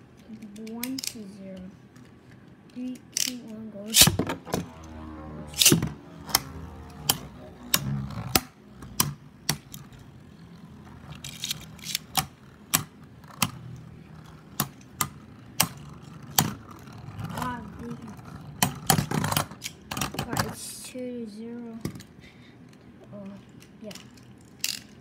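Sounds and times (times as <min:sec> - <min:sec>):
spinning tops whirring: 0:03.9 - 0:19.8.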